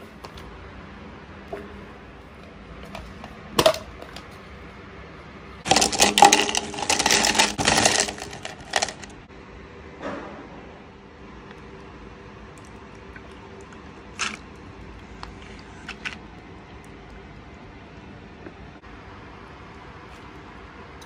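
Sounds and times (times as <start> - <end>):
ice cubes clattering into cup: 5.7 - 9.2, 14.2 - 14.4.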